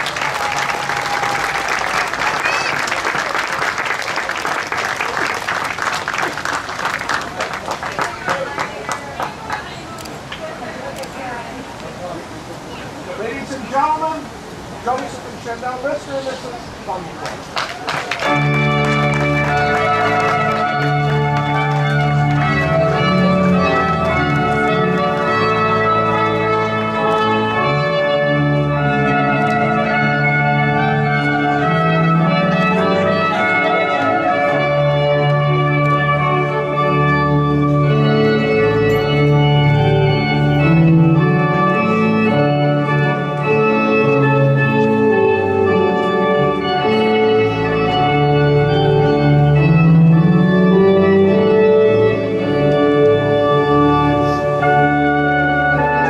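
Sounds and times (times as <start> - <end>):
organ playing sustained chords: 18.2 - 56.0.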